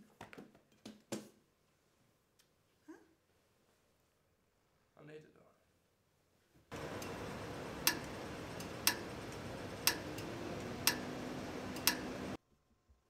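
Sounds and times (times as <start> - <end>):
night street ambience hiss: 6.7 - 12.4
sharp ticks: 6.8 - 12.3.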